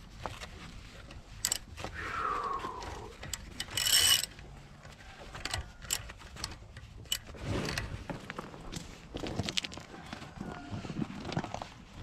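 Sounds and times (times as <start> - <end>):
ratchet wrench clicking: 1.4 - 1.6, 3.2 - 4.4, 5.4 - 7.3.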